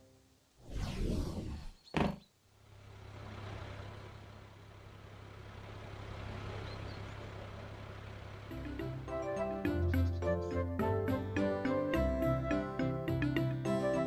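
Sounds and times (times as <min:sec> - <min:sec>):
cartoon whoosh: 0:00.6 - 0:01.8
low engine rumble: 0:02.4 - 0:11.4.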